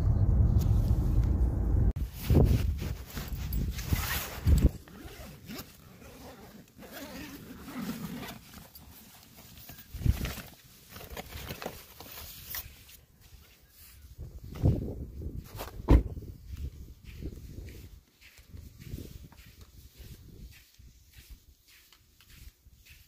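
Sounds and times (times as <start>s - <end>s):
fabric rustling: 2.0s - 13.0s
bag unzipping: 2.8s - 8.8s.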